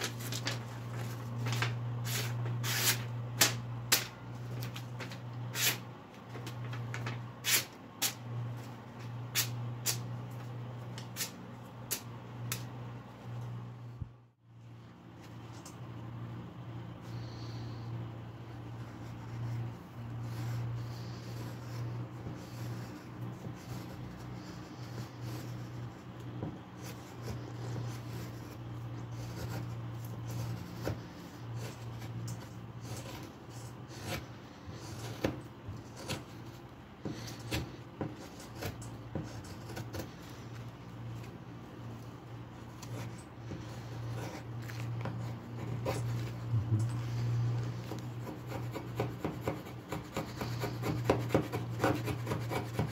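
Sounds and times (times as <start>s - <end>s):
knife scraping wood: 0.0s - 8.2s, 18.5s - 41.4s, 42.6s - 52.9s
steady low hum: 0.0s - 52.9s
rasp filing wood: 47.1s - 52.9s.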